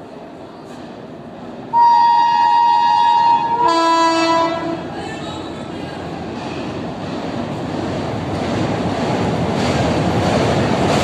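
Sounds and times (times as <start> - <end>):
oncoming train rushing: 0.0 - 11.0
train horn blast: 1.7 - 4.9.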